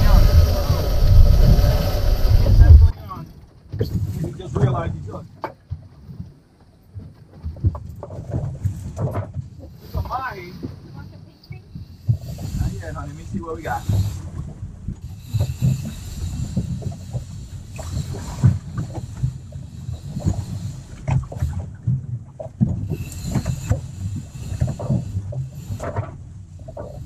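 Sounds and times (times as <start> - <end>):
water sloshing against boat hull: 0.0 - 27.0
boat low thumps and knocks: 4.5 - 11.0, 20.2 - 23.9.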